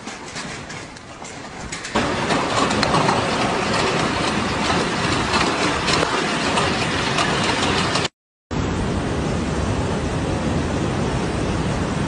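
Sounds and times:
hail clattering on ground: 0.0s - 8.1s.

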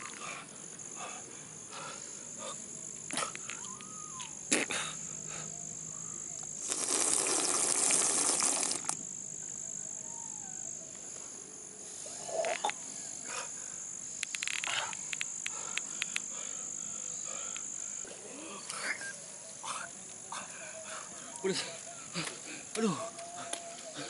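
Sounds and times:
insects chirring: 0.0s - 24.0s
person slurping water: 6.6s - 9.0s.

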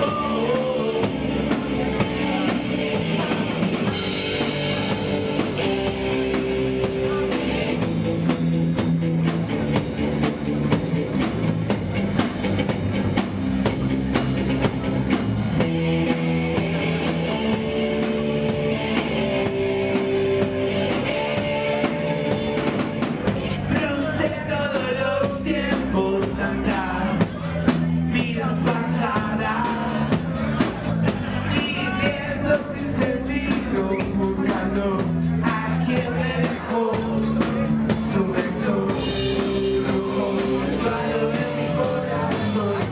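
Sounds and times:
man singing: 0.0s - 7.9s, 23.2s - 42.9s
distorted electric guitar chords: 0.0s - 23.8s
drum kit: 0.0s - 42.9s.

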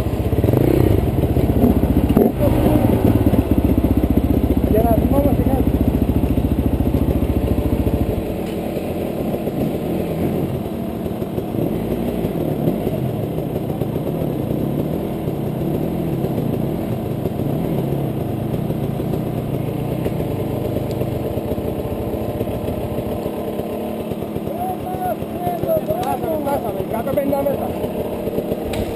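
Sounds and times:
dirt bike engine idling: 0.0s - 28.9s
dirt bikes idling unevenly: 0.0s - 28.9s.

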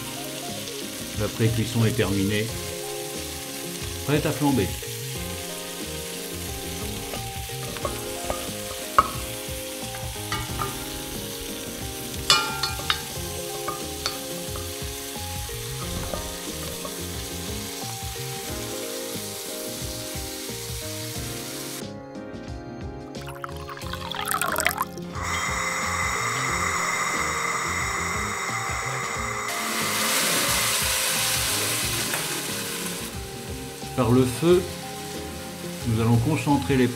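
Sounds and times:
meat sizzling in a pot: 0.0s - 21.9s, 23.2s - 36.9s
wooden spoon knocking a pot: 7.1s - 9.4s, 12.3s - 15.0s.

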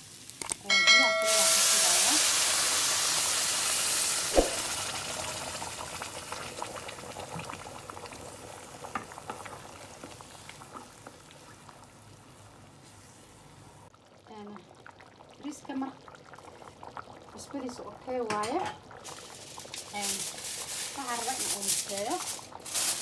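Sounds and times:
rice sizzling in a hot pan: 0.0s - 13.7s, 18.4s - 23.0s
liquid bubbling: 4.2s - 12.8s, 13.5s - 18.2s, 18.8s - 19.9s.

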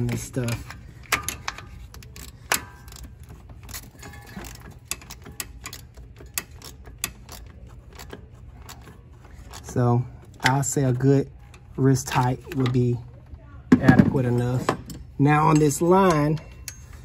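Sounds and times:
ratchet wrench clicking: 0.0s - 10.9s.

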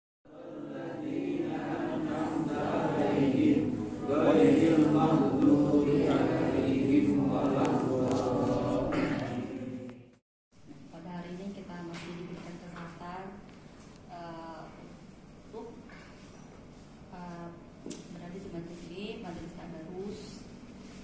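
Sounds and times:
voices chanting: 0.3s - 10.1s.

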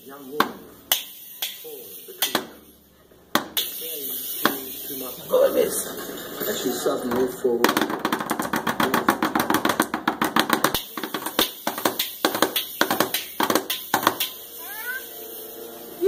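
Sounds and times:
drumsticks on toy drum kit: 7.6s - 14.4s.

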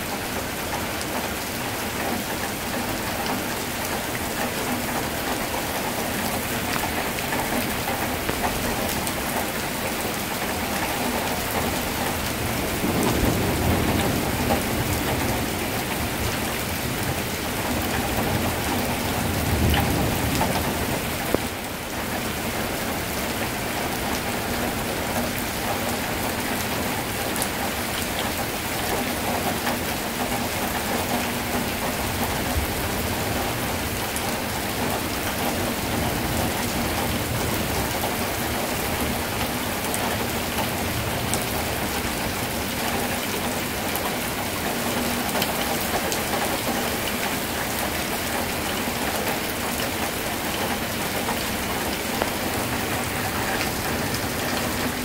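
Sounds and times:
heavy rain pouring: 0.0s - 55.0s
close raindrop hits: 3.2s - 16.2s, 17.1s - 22.3s.

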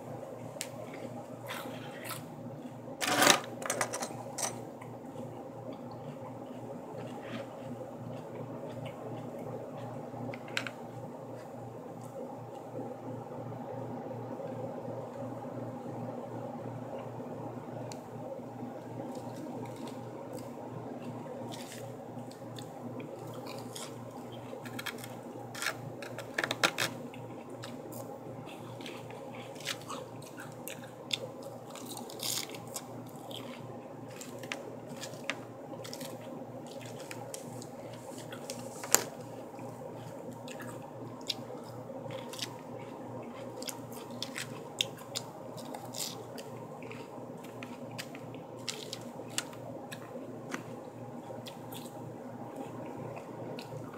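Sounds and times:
steady low hum: 0.0s - 53.9s
lettuce being chewed: 4.8s - 12.7s, 19.0s - 53.9s.

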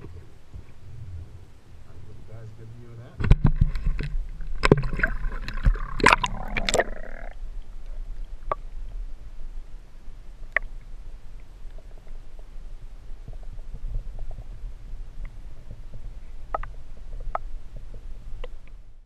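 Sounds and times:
underwater rumble: 0.0s - 19.0s
splashing into water: 3.6s - 7.3s.

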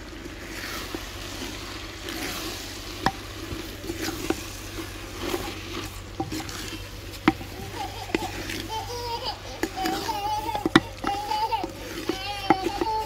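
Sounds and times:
leaves sizzling in hot oil: 0.0s - 13.0s
spatula knocking against pot: 6.2s - 8.7s, 9.6s - 13.0s.

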